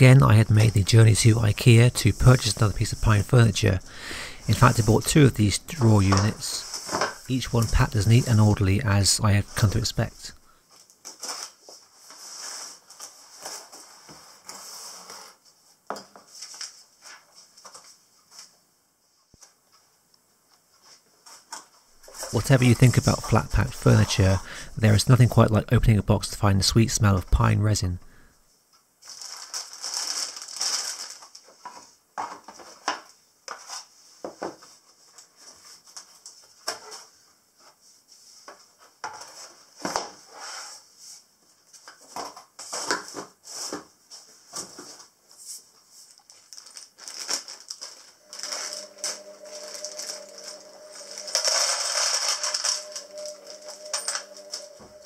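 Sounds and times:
plastic bag tearing: 0:29.0 - 0:31.4, 0:46.4 - 0:48.9
plastic bag crinkling: 0:29.0 - 0:31.5, 0:46.1 - 0:55.0.

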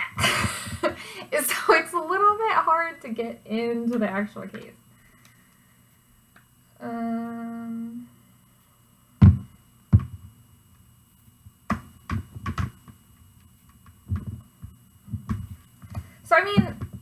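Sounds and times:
woman humming: 0:06.8 - 0:08.1
phone knocking against plastic case: 0:09.2 - 0:10.2, 0:11.7 - 0:12.8, 0:14.1 - 0:14.4, 0:15.1 - 0:16.0.

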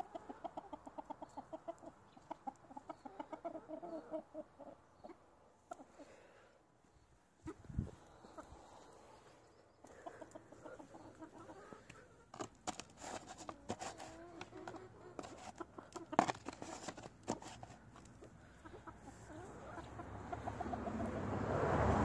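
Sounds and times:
farm animals calling: 0:00.0 - 0:06.4, 0:07.4 - 0:12.4, 0:18.0 - 0:21.4.

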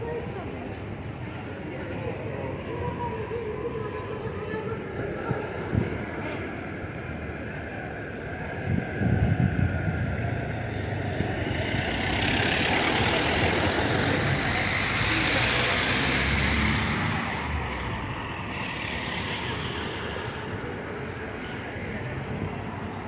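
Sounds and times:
low engine rumble: 0:08.3 - 0:23.0
cars driving past: 0:09.5 - 0:23.0.

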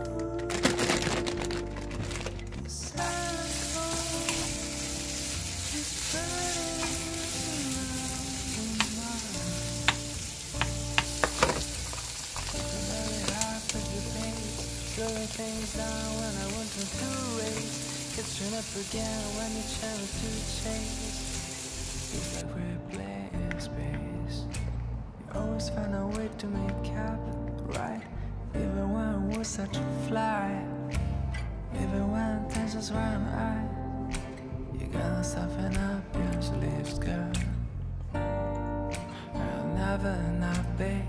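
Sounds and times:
meat and mushrooms sizzling in pan: 0:03.0 - 0:22.4.

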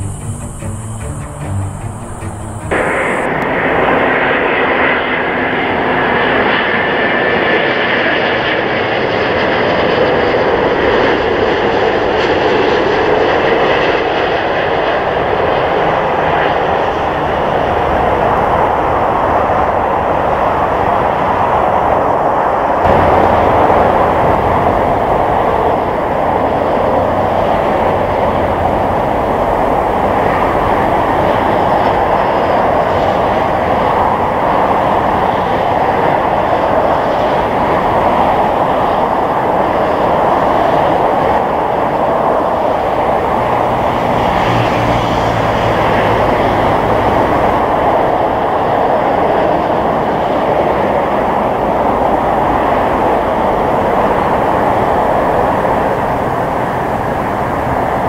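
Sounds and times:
faint low hum: 0:00.0 - 0:03.3
jet engine rush: 0:00.0 - 0:58.0.

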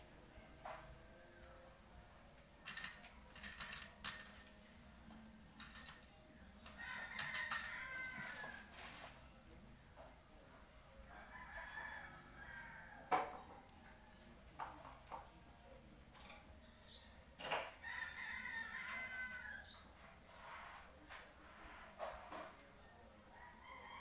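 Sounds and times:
small objects clattering: 0:02.6 - 0:04.6, 0:07.1 - 0:09.3.

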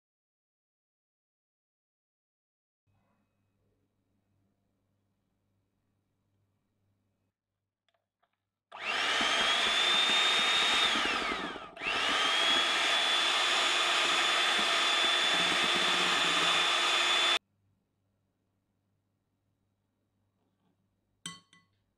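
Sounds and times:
electric hand mixer whining: 0:08.7 - 0:17.4.

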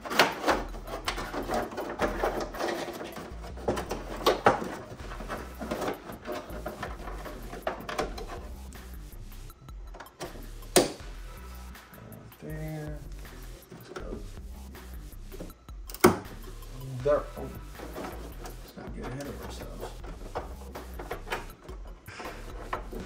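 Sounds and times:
tools clicking and knocking: 0:00.0 - 0:08.6, 0:09.7 - 0:11.0, 0:15.4 - 0:16.3, 0:17.4 - 0:23.0.

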